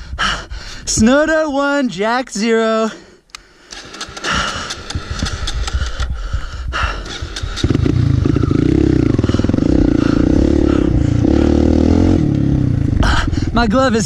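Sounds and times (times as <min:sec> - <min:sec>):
dirt bike engine revving: 0:03.7 - 0:05.8, 0:07.0 - 0:13.6.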